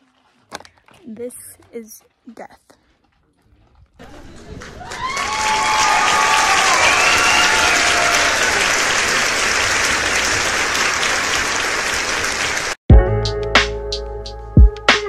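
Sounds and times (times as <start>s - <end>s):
crowd applauding and cheering: 4.0s - 12.8s
voices whooping: 4.8s - 9.0s.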